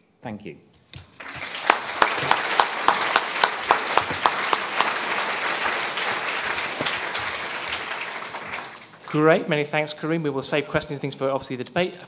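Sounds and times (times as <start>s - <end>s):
nearby person clapping evenly: 1.0s - 9.1s
audience applauding: 1.1s - 9.3s.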